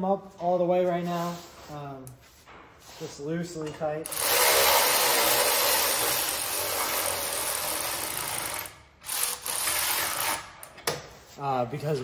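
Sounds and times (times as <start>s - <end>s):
electric ratchet running: 4.0s - 10.5s.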